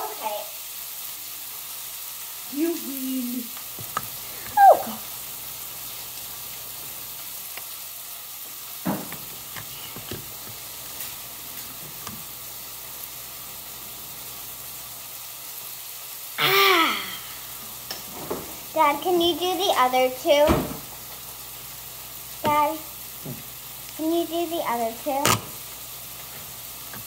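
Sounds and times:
background hiss: 0.0s - 27.0s
girl squealing: 4.5s - 5.0s, 16.4s - 17.3s
girl yelling: 4.5s - 5.0s, 16.4s - 17.2s.

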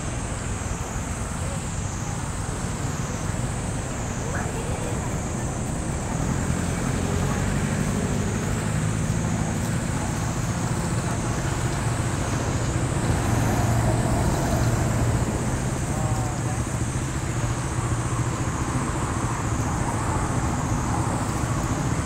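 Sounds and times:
low rumble of traffic: 0.0s - 22.0s.

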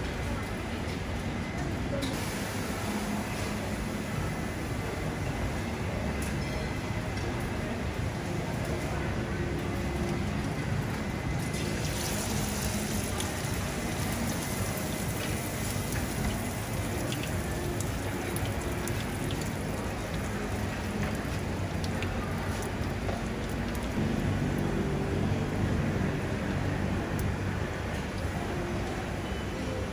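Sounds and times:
hot oil sizzling in a pan: 11.5s - 21.1s
steady low rumble: 23.4s - 29.0s.

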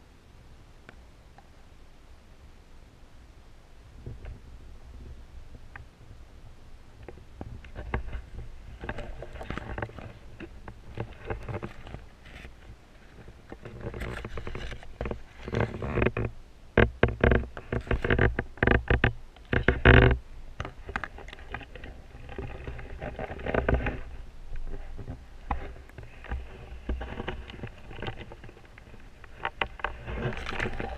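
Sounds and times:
muffled underwater rumbling: 19.6s - 30.9s.

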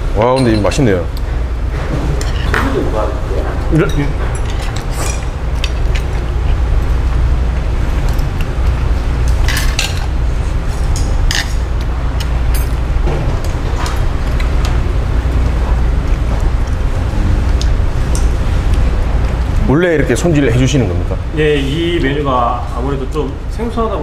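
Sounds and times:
low rumble with hiss: 0.0s - 24.0s
tableware clinking: 0.3s - 1.0s, 3.7s - 6.1s, 9.4s - 10.2s, 10.9s - 11.7s.

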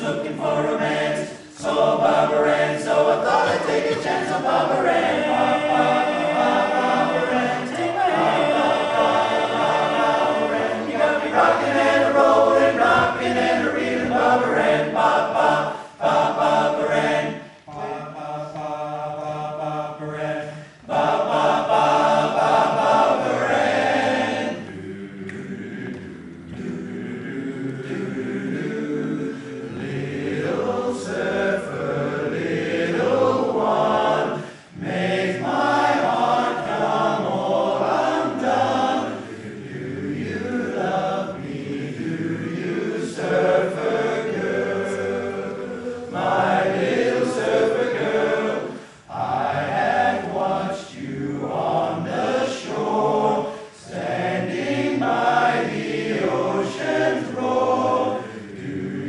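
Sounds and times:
men's chorus singing a cappella: 0.0s - 59.0s
singers breathing: 15.6s - 16.0s, 17.4s - 17.7s, 20.4s - 20.9s, 29.3s - 29.6s, 34.3s - 34.8s, 48.7s - 49.1s, 53.4s - 53.8s.

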